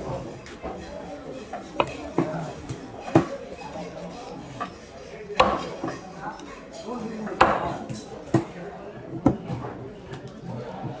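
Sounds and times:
knife chopping fish on block: 1.7s - 3.3s, 4.1s - 6.0s.

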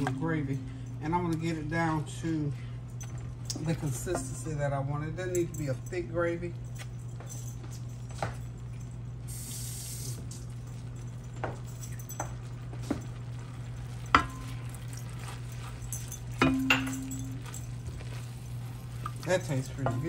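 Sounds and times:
steady low hum: 0.0s - 20.0s
spatula stirring gravy in pan: 12.7s - 20.0s.

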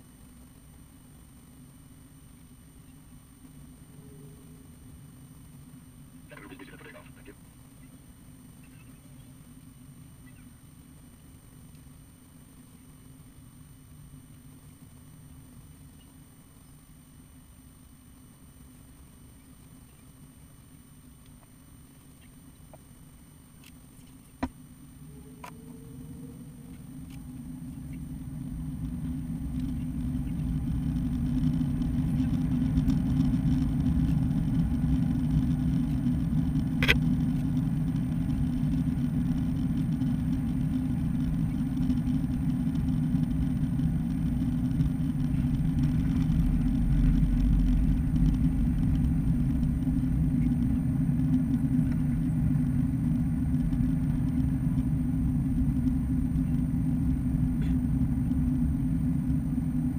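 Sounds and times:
jet engines roaring: 6.2s - 7.4s.

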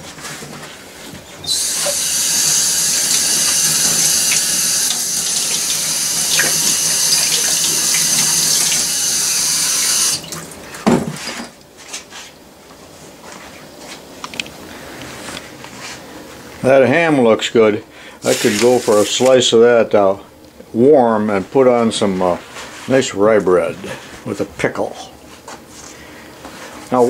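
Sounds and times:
water running from a faucet: 1.5s - 10.6s.

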